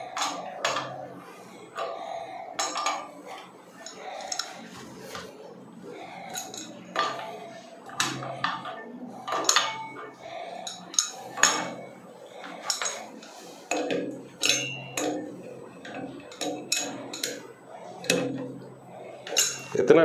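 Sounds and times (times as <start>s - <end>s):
spanner clanking on metal fittings: 2.6s - 3.1s, 3.8s - 4.6s, 6.3s - 10.0s, 10.6s - 11.8s, 12.4s - 17.4s, 18.0s - 18.5s, 19.2s - 19.9s.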